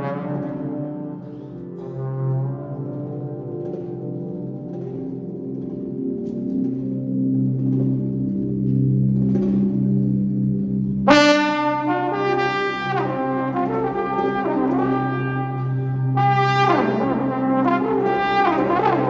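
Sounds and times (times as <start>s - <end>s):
trombone playing held notes: 0.0s - 4.0s, 11.1s - 19.0s.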